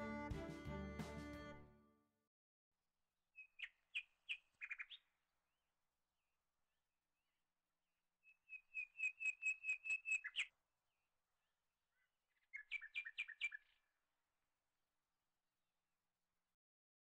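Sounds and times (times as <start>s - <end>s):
songbird chirping: 3.4s - 5.2s, 8.2s - 10.6s, 11.9s - 13.9s.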